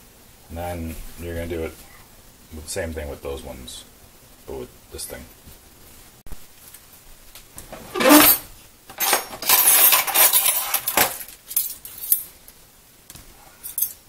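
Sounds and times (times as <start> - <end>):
metal utensils rattling: 7.8 - 12.3, 13.6 - 14.0.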